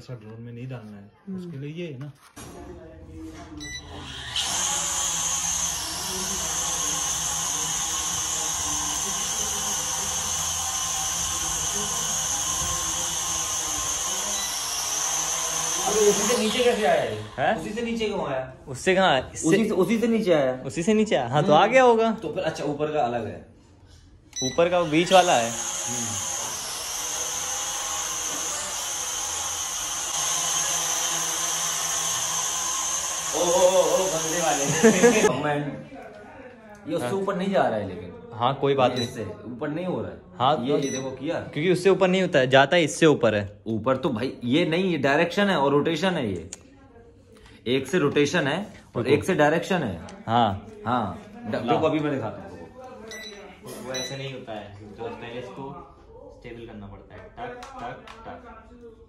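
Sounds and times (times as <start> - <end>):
toy drone whirring hum: 3.8 - 17.4, 24.8 - 35.3.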